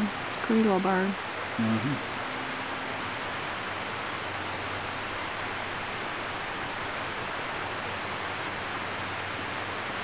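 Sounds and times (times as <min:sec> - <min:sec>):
rushing noise in woods: 0:00.0 - 0:10.0
faint high bird chirps: 0:01.0 - 0:05.6.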